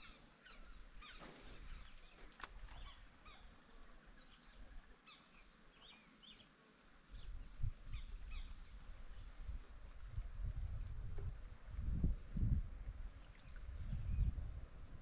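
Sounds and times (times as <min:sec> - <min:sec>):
birds chirping: 0:00.0 - 0:06.6
low rumbling on microphone: 0:07.2 - 0:15.0.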